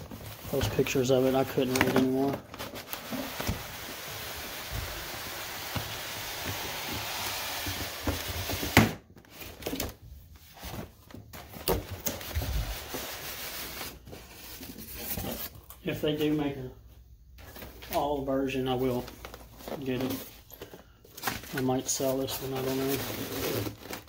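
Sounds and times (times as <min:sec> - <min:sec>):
handling foam and cardboard: 0:00.0 - 0:24.0
cardboard sliding on foam: 0:12.3 - 0:14.4.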